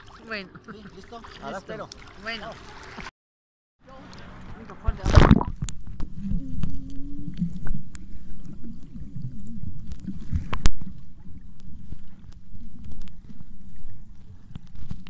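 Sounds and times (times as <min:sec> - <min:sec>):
muffled underwater churning rumble: 0:03.9 - 0:15.0.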